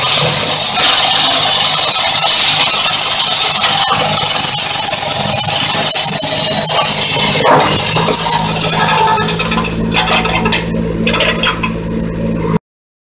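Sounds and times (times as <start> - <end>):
flail mulcher shredding grass: 0.0 - 10.6
debris clicks and rattles: 0.0 - 11.8.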